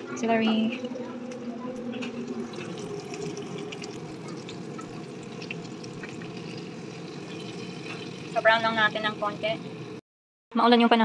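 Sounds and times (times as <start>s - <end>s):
meat sizzling in a frying pan: 2.1s - 10.0s.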